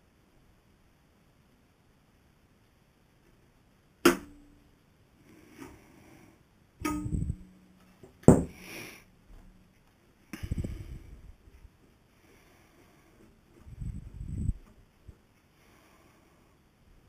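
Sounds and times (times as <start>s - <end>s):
knock with low rumble: 8.3s - 8.5s.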